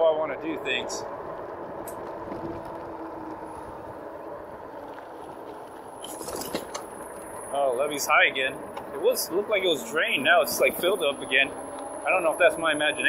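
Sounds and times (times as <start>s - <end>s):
wind noise: 0.0s - 7.5s
bike tyres rolling: 0.0s - 13.0s.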